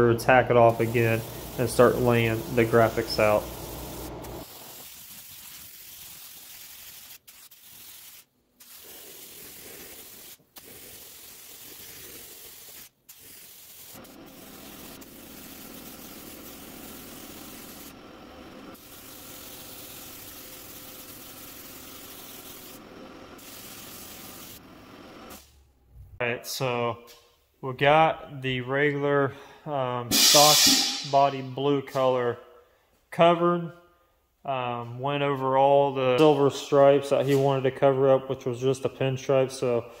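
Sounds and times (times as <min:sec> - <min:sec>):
paint spray gun hissing: 0:00.6 - 0:25.5, 0:30.1 - 0:31.1.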